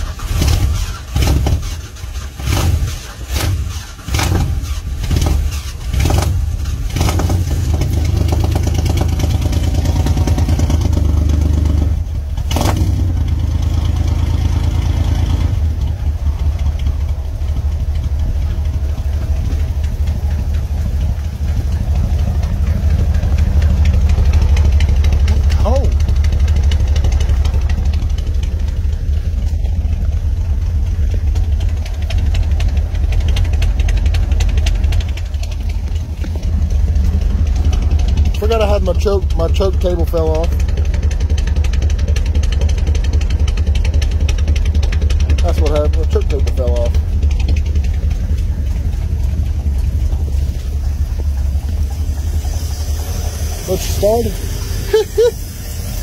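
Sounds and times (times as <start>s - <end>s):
truck engine idling roughly: 0.0s - 56.0s
fast ticking: 15.9s - 56.0s.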